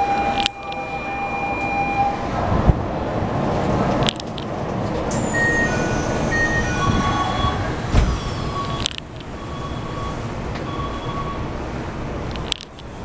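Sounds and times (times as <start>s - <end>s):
descending door chime tones: 0.0s - 2.3s, 5.2s - 8.8s
train and platform noise: 0.0s - 13.0s
train doors thudding shut: 4.7s - 8.8s.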